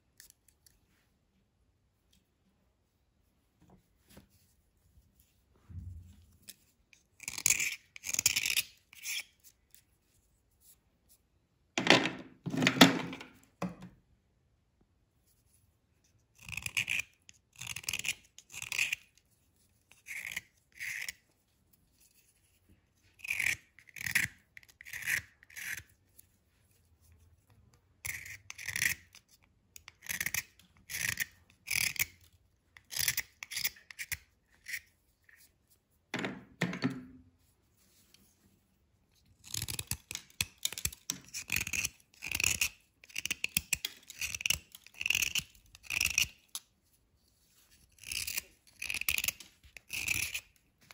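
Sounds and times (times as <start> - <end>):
knife scraping a powdery bar: 6.2 - 11.2, 15.3 - 35.8, 39.1 - 50.9.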